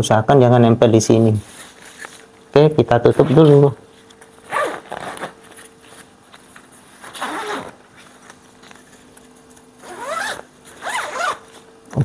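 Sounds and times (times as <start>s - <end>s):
zipper being pulled closed: 4.5s - 5.4s, 7.0s - 7.8s, 9.8s - 11.5s.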